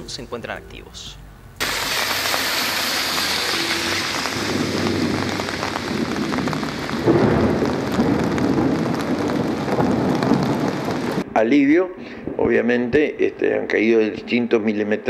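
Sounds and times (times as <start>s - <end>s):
rain falling on street: 1.6s - 11.2s.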